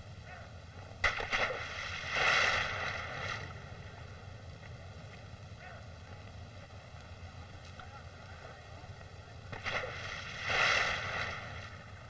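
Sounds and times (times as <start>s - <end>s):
large splash into water: 1.0s - 3.5s, 9.6s - 11.8s.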